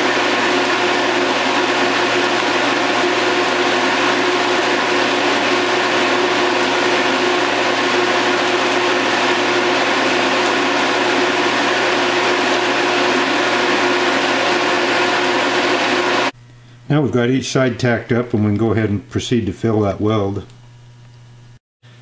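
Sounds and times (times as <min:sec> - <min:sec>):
tig welder humming and hissing: 0:00.0 - 0:16.8.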